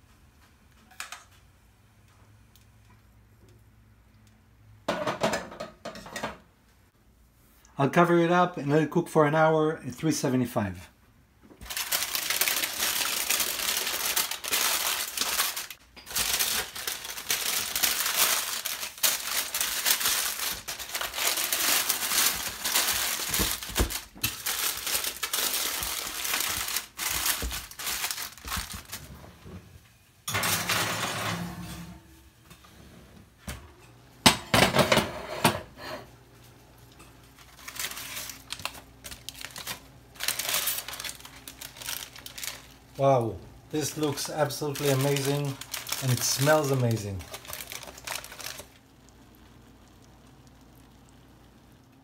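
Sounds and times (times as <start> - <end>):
foil and paper crinkling: 11.6 - 29.2, 37.4 - 48.8.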